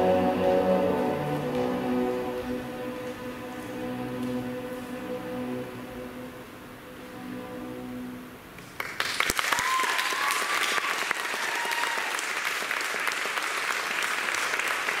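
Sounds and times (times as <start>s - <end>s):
music: 0.0s - 8.8s
audience applauding and cheering: 8.6s - 15.0s.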